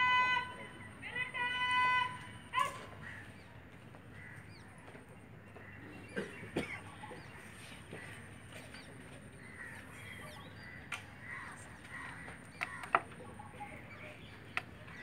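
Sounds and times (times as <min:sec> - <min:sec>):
open-air background noise: 0:00.0 - 0:15.0
crows cawing: 0:04.2 - 0:04.6, 0:09.4 - 0:13.0.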